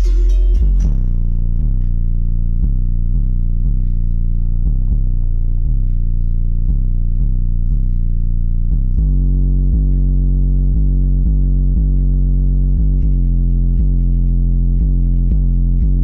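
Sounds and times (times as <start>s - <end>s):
bass-heavy music with steady beat: 0.0s - 16.0s.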